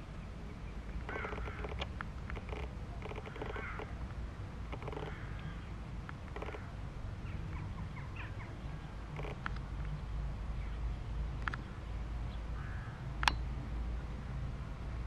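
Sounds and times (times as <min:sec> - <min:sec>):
birds calling: 0:00.0 - 0:10.0, 0:11.5 - 0:13.4
sharp click: 0:13.2 - 0:13.4.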